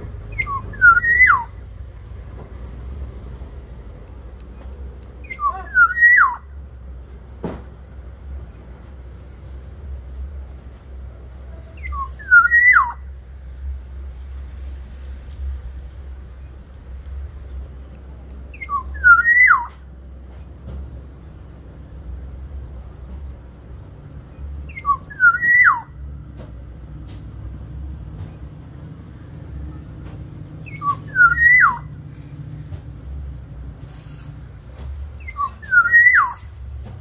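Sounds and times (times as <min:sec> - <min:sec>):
bird singing fluty whistles: 0:00.3 - 0:01.6, 0:05.2 - 0:06.5, 0:11.8 - 0:13.0, 0:18.5 - 0:19.8, 0:24.6 - 0:25.9, 0:30.6 - 0:32.0, 0:35.2 - 0:36.6.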